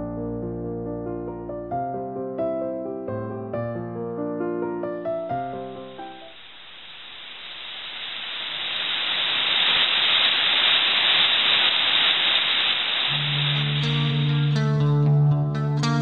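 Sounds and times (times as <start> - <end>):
music: 0.0 - 6.3, 13.1 - 16.0
waterfall rushing: 6.3 - 15.0.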